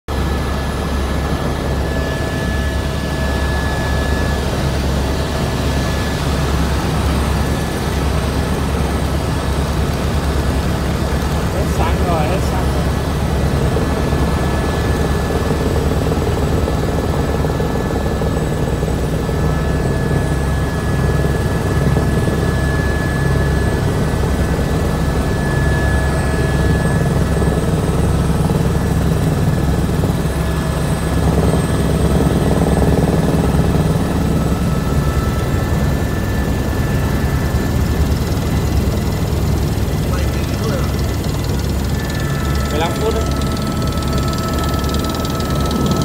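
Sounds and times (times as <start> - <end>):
helicopter rotor and engine drone: 0.1 - 46.0
thin high whine: 35.0 - 46.0.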